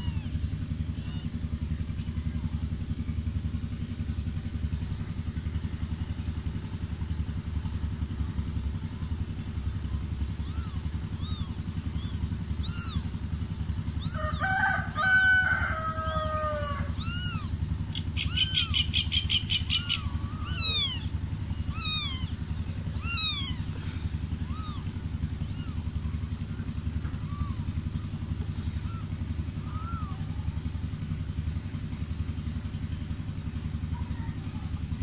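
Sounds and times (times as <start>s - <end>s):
rapid chattering trill: 0.0s - 14.4s, 16.6s - 32.6s
kittens mewing: 0.0s - 31.6s
low engine drone: 0.0s - 35.0s
rooster crowing: 13.9s - 18.8s.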